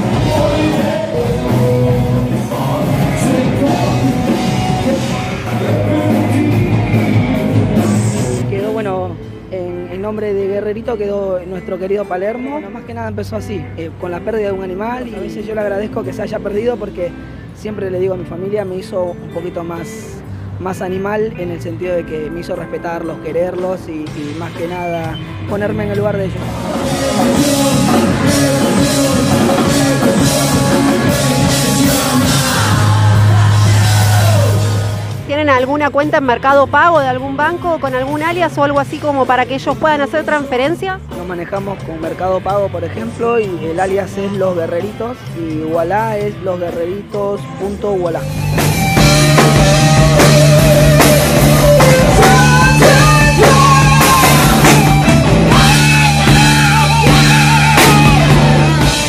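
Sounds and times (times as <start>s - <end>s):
drum kit: 0.0s - 9.8s, 23.1s - 59.0s
electric guitar: 0.0s - 17.6s, 18.2s - 59.0s
bass guitar: 0.0s - 59.0s
live rock band playing: 0.0s - 59.0s.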